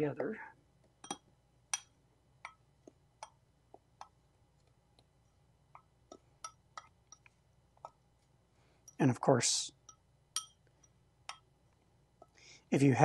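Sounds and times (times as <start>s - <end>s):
metal fork clinking on ceramic bowl: 1.0s - 2.6s, 6.4s - 7.3s, 9.8s - 11.4s.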